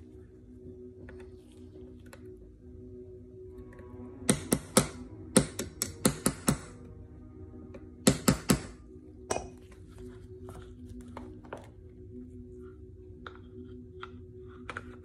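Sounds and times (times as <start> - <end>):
hammer tapping pin punch: 4.3 - 6.7, 8.0 - 8.8.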